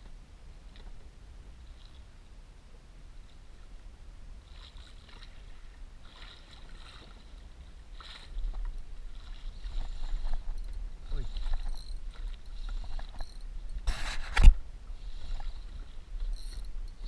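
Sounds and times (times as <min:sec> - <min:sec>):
wind rumbling on microphone: 0:00.0 - 0:17.0
water splashing against boat hull: 0:04.4 - 0:17.0.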